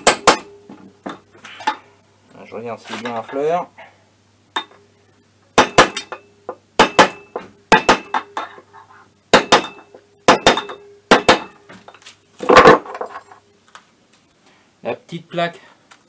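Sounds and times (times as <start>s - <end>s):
hammer striking metal tube: 0.0s - 0.6s, 5.6s - 6.2s, 6.8s - 8.6s, 9.3s - 11.6s.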